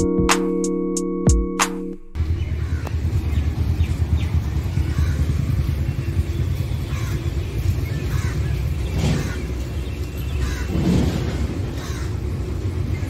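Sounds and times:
keyboard background music: 0:00.0 - 0:02.2.

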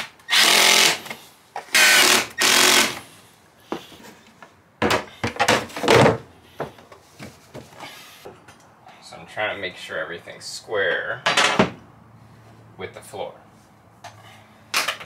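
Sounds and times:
power drill driving screws: 0:00.0 - 0:03.1
knocks and scrapes: 0:03.6 - 0:08.6.

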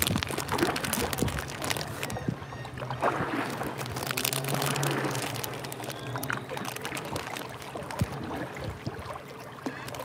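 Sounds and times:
paddle splashing water: 0:00.0 - 0:10.0
water dripping: 0:03.6 - 0:08.2.

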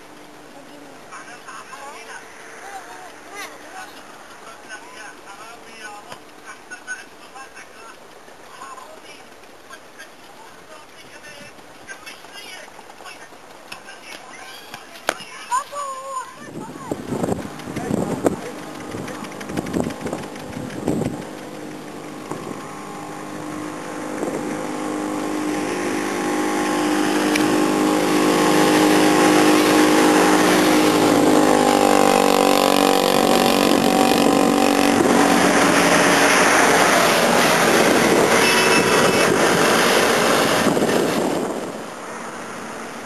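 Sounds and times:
road and wind noise: 0:00.0 - 0:43.0
vehicle engine running: 0:00.0 - 0:43.0.

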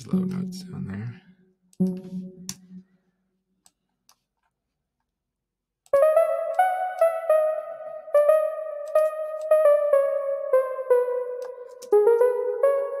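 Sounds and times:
plucked synth notes: 0:01.8 - 0:02.9, 0:06.0 - 0:13.0.

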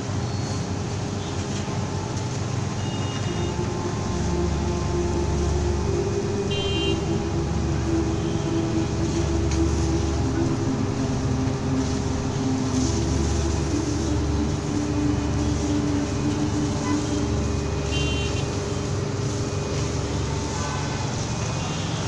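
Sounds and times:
rumble of vehicle engines: 0:00.0 - 0:22.0
car horn toot: 0:06.5 - 0:07.2, 0:17.9 - 0:18.6.

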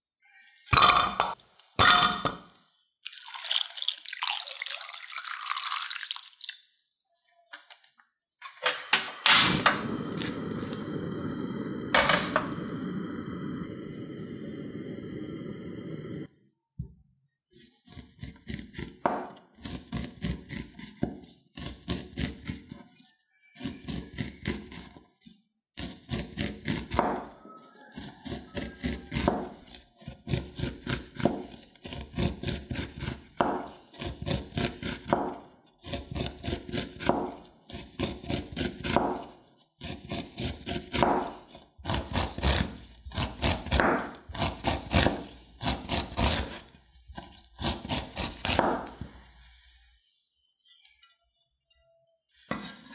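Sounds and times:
knife slicing corn on wooden board: 0:17.6 - 0:23.0, 0:23.6 - 0:49.1.

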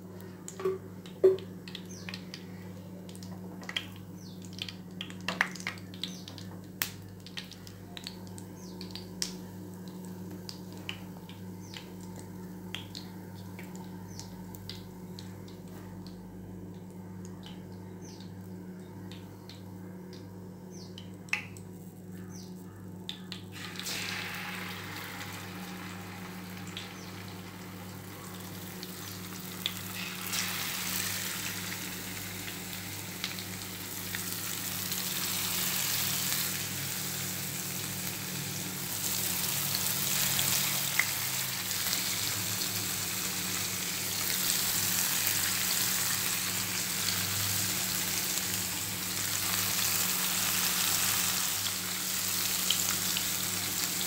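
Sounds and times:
steady low hum: 0:00.0 - 0:54.0
fish frying in hot oil: 0:23.5 - 0:54.0.

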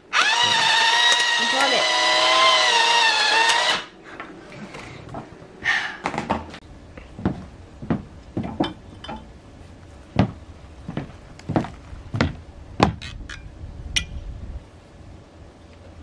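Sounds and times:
boots stepping on wooden boards: 0:07.2 - 0:08.9, 0:10.1 - 0:13.1.

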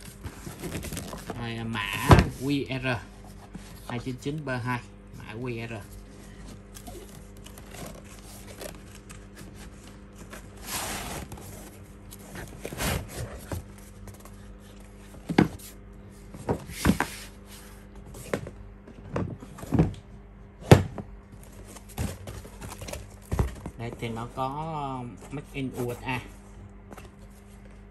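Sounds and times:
faint steady hum: 0:00.0 - 0:27.9.

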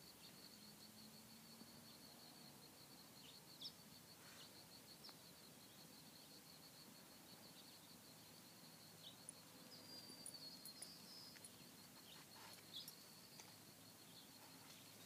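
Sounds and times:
insect trill: 0:00.0 - 0:15.0
bird chirps: 0:07.5 - 0:15.0.

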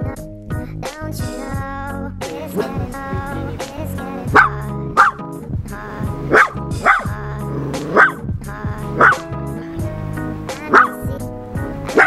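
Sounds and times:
background music: 0:00.0 - 0:12.0
dog barking: 0:04.3 - 0:05.2, 0:06.3 - 0:08.2, 0:09.0 - 0:09.2, 0:10.6 - 0:11.0.

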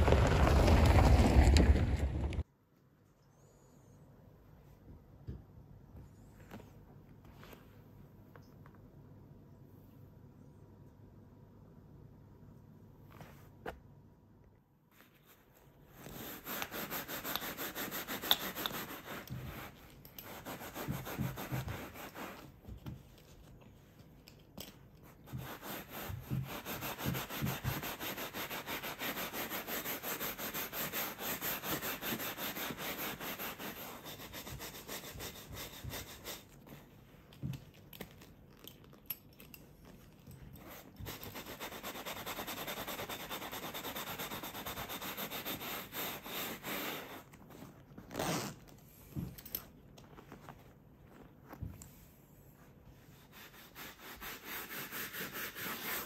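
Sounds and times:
bristle brush scrubbing leather: 0:15.9 - 0:22.9, 0:25.0 - 0:36.9, 0:40.6 - 0:47.3, 0:53.0 - 0:56.0.

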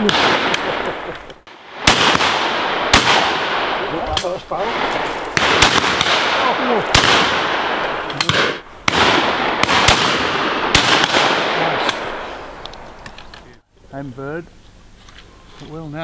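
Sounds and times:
shotgun shots with echo: 0:00.0 - 0:12.3.

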